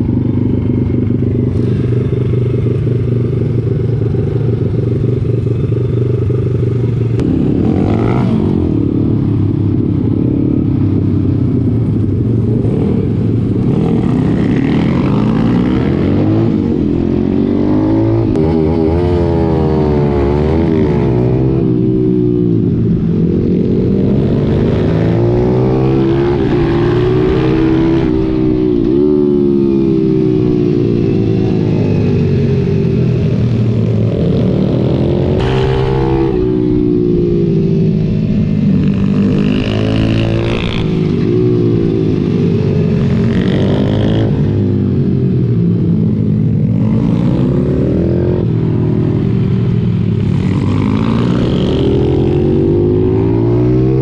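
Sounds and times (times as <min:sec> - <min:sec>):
other pit bikes nearby: 0:00.0 - 0:54.0
pit bike engine revving: 0:34.0 - 0:44.7.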